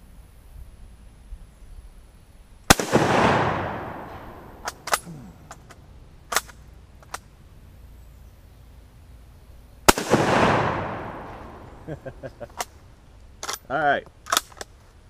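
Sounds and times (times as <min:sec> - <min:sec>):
rifle shot with echo: 0:02.7 - 0:05.5, 0:09.9 - 0:12.3
rifle bolt metallic clicks: 0:02.7 - 0:07.3, 0:13.4 - 0:14.8.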